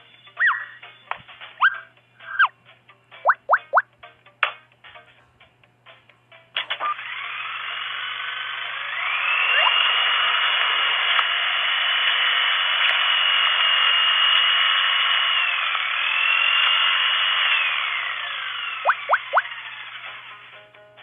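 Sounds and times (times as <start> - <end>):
vacuum cleaner running: 7.0 - 11.4.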